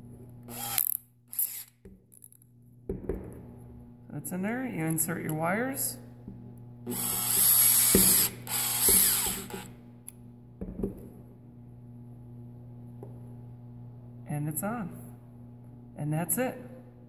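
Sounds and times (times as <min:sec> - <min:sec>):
cordless drill running: 0:00.5 - 0:01.8, 0:06.8 - 0:09.8.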